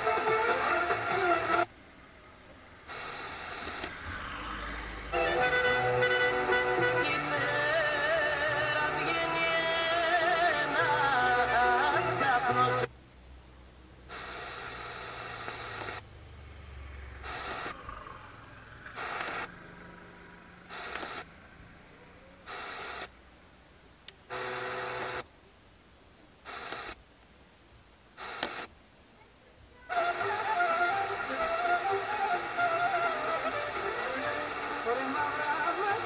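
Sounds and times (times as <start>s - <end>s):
radio static bursts: 0.0s - 1.7s, 2.8s - 5.2s, 14.1s - 16.1s, 17.0s - 21.8s, 22.4s - 23.3s, 24.2s - 25.3s, 26.4s - 27.1s, 28.1s - 28.8s, 29.9s - 36.0s
radio music: 0.0s - 12.9s, 14.1s - 16.0s, 17.1s - 23.2s, 28.2s - 28.7s, 29.9s - 36.0s.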